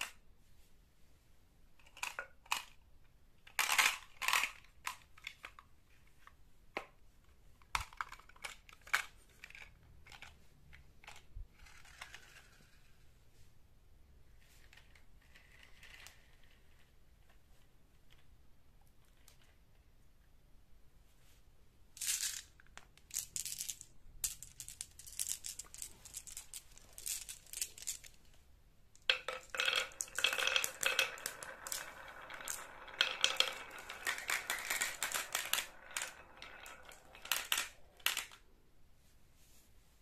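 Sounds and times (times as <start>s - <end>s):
marbles rolling down wooden track: 3.5s - 5.0s, 23.2s - 28.2s, 29.0s - 38.4s
marbles clicking: 22.0s - 28.2s, 29.0s - 38.4s.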